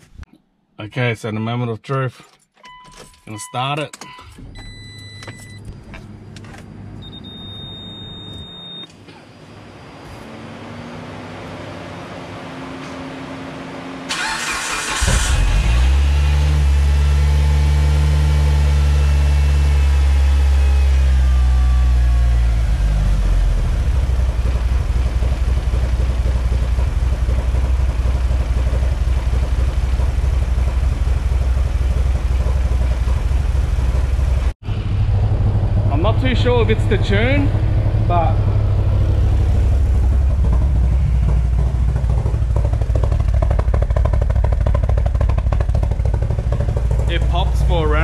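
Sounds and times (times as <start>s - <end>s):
car engine idling and popping: 2.2s - 9.2s, 14.1s - 48.0s
engine starter cranking: 14.1s - 15.9s.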